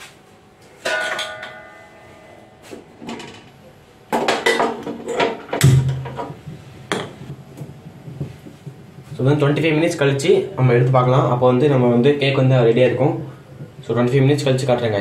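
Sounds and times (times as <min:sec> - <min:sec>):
metallic clang ringing: 0:00.8 - 0:02.7.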